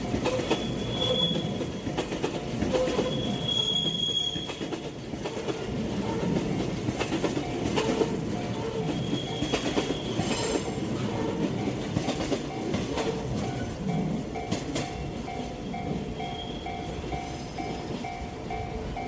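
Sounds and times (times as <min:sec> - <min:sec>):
freight train wheels rumbling: 0:00.0 - 0:19.0
high wheel squeal: 0:00.3 - 0:01.6, 0:02.8 - 0:04.7, 0:08.7 - 0:10.8, 0:15.7 - 0:16.8.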